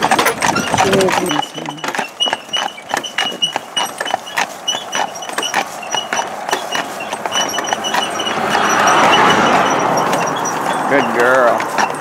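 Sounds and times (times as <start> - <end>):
harness metallic clinks: 0.0 - 12.0
hooves clip-clopping on asphalt: 0.0 - 12.0
car tyres hissing: 6.3 - 12.0.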